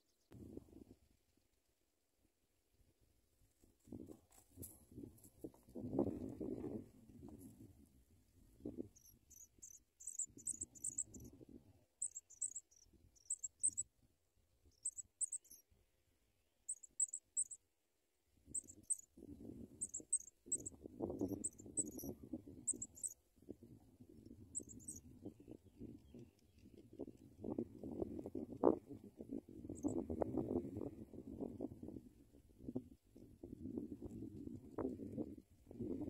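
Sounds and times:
nestlings begging chirps: 9.0 - 11.3, 12.0 - 13.8, 14.8 - 15.6, 16.7 - 17.6, 18.6 - 19.1, 19.8 - 20.7, 21.3 - 23.2, 24.6 - 25.0.

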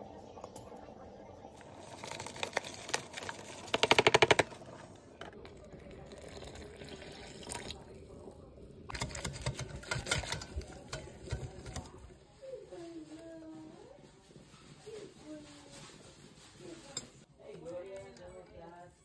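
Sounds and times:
powder pouring into glass bowl: 1.6 - 4.0
water pouring: 5.4 - 8.3.

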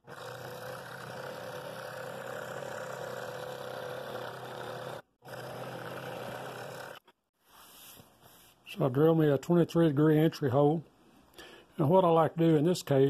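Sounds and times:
scroll saw cutting wood: 0.0 - 7.2.

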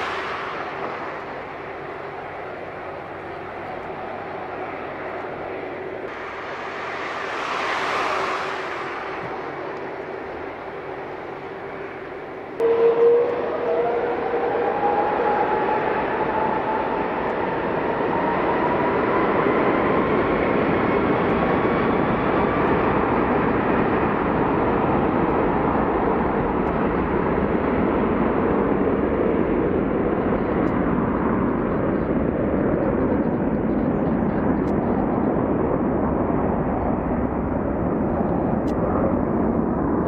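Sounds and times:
jet engines spooling up: 0.0 - 12.7.

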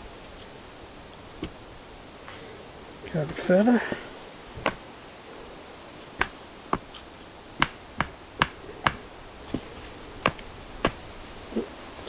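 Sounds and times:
stake hammered into ground: 6.2 - 6.9, 7.6 - 9.0.

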